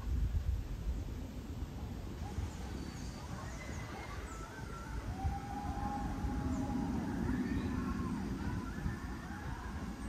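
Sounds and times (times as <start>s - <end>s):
roller coaster train rumbling: 1.8s - 10.0s
riders screaming: 3.2s - 10.0s.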